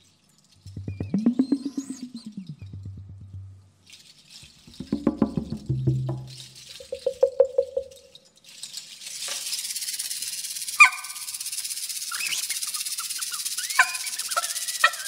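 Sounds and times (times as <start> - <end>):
short rising whistles: 0.7 - 3.1, 12.1 - 14.8
quick pitched percussion taps: 0.7 - 3.7, 4.7 - 8.0
high rattling hiss: 8.9 - 15.0.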